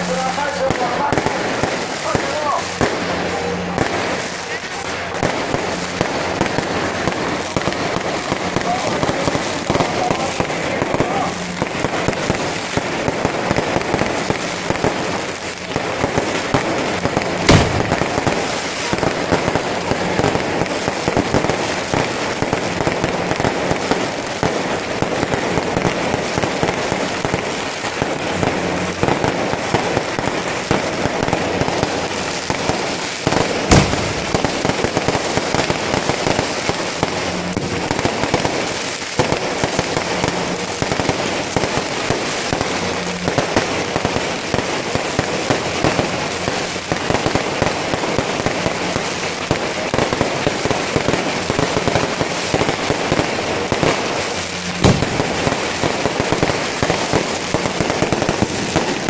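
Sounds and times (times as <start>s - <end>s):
fireworks crackling and popping: 0.0s - 59.0s
loud firework bang: 14.5s - 21.4s, 32.6s - 35.8s, 54.6s - 58.8s.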